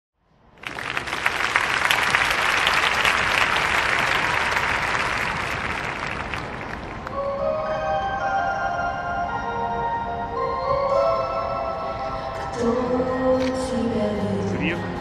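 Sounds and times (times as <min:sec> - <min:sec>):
audience applauding: 0:00.6 - 0:07.2.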